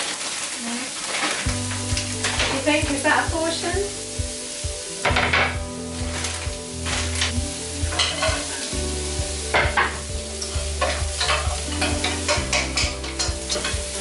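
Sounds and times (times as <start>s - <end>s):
vegetables sizzling in a pan: 0.0s - 14.0s
utensil scraping a pan: 5.0s - 8.8s, 9.4s - 14.0s.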